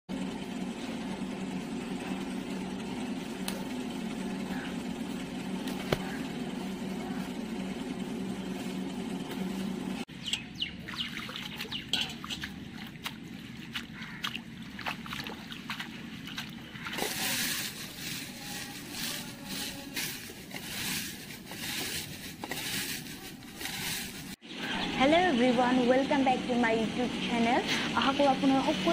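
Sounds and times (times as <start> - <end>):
low hum: 0.1 - 28.9
water splashing and trickling: 10.8 - 18.6
hands stirring leaves in water: 10.8 - 24.4.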